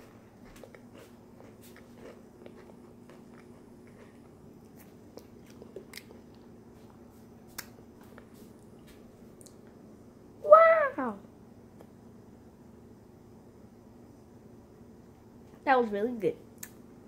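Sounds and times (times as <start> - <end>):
faint steady hum: 0.0 - 17.0
mouth clicks while chewing: 7.5 - 7.8, 9.4 - 9.6.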